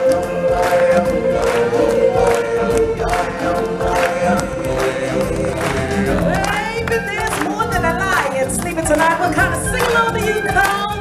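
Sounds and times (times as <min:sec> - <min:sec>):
choir singing: 0:00.0 - 0:06.9
drumbeat: 0:00.0 - 0:10.2.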